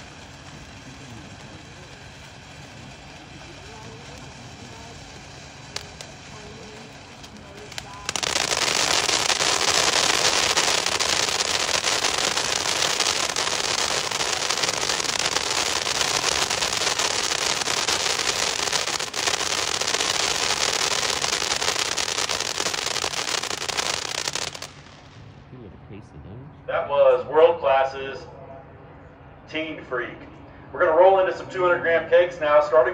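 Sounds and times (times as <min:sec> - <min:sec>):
firework crackling bursts: 0:00.0 - 0:25.4.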